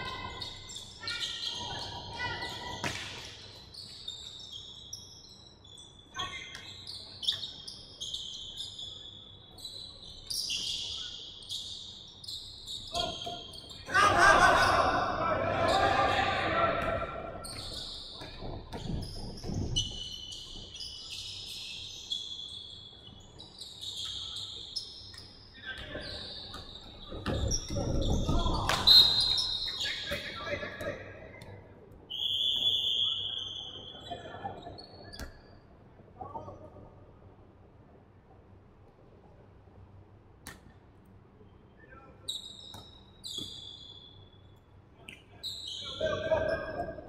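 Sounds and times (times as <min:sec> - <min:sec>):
sneakers squeaking on hardwood floor: 0:03.5 - 0:13.8, 0:16.8 - 0:30.3, 0:42.3 - 0:44.2, 0:45.4 - 0:47.0.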